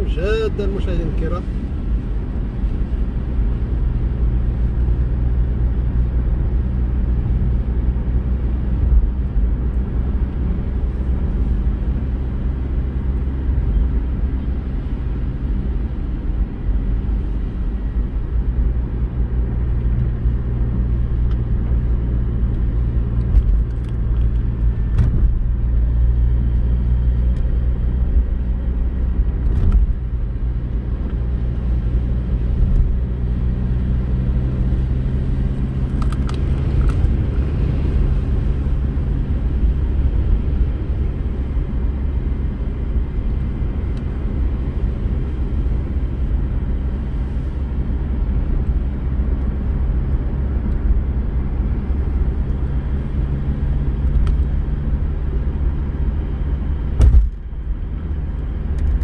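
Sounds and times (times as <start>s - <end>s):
car driving on wet road: 0.0s - 59.0s.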